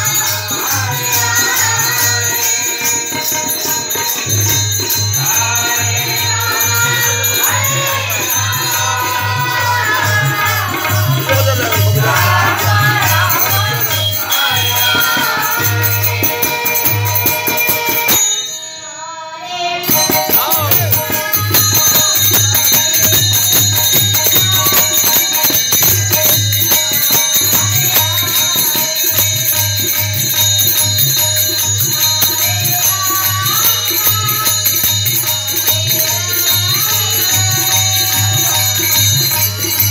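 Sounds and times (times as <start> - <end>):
harmonium: 0.0 - 39.9
jingling percussion: 0.0 - 39.9
hand drum beat: 9.2 - 18.2, 19.8 - 28.9
boy singing through a pa: 18.9 - 23.5, 31.4 - 39.4.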